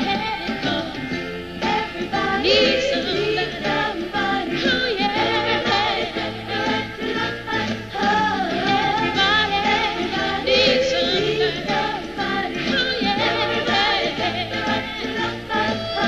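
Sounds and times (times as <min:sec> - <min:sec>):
instrumental backing: 0:00.0 - 0:16.0
women singing in harmony: 0:00.0 - 0:16.0.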